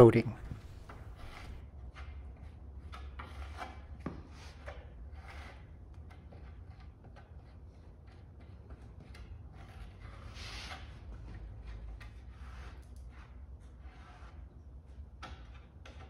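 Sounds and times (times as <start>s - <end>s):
trowel scraping epoxy on wood: 0.5s - 16.0s.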